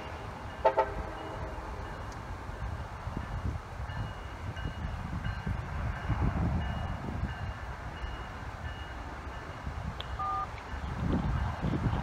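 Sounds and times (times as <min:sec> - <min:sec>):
freight cars rumbling: 0:00.0 - 0:12.0
back-up alarm beeping: 0:10.2 - 0:10.5.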